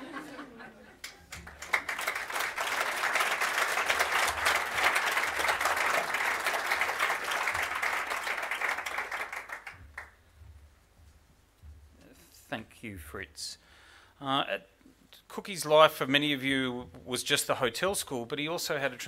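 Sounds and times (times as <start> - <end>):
audience applauding: 1.0 - 10.2.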